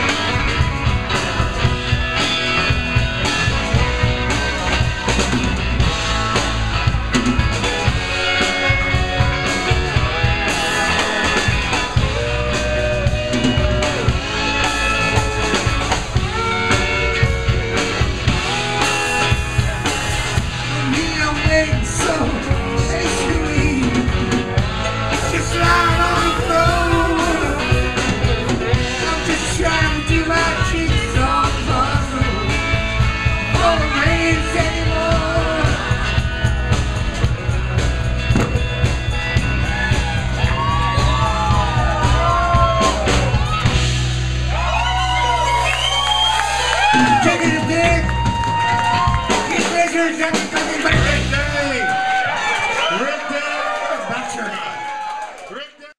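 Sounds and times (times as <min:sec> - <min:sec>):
drum kit: 0:00.0 - 0:52.9
bass guitar: 0:00.0 - 0:53.0
electric guitars: 0:00.0 - 0:53.0
man singing: 0:25.2 - 0:28.2, 0:28.9 - 0:32.7, 0:33.4 - 0:36.0.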